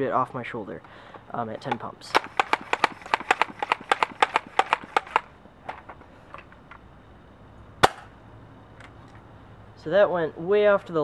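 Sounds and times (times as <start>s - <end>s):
air pump clicking strokes: 2.1s - 5.3s.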